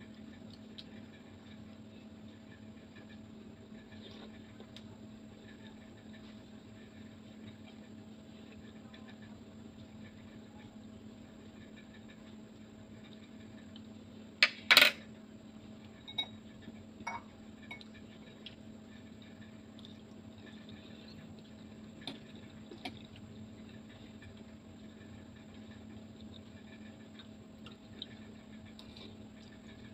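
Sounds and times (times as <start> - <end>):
faint steady hum: 0.0 - 29.9.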